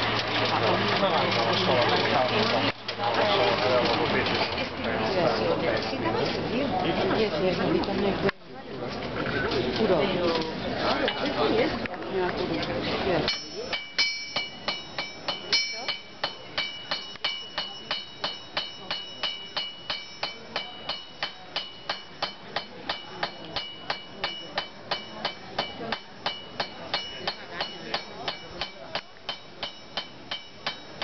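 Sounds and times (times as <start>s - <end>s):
hammer striking iron on anvil: 13.3s - 31.0s.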